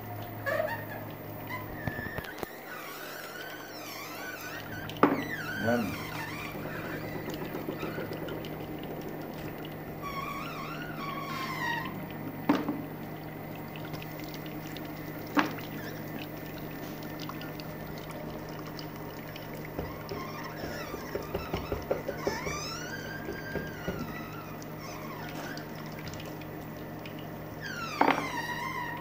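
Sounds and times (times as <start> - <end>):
oil press humming: 0.0 - 29.0
sharp knocks: 19.8 - 22.5.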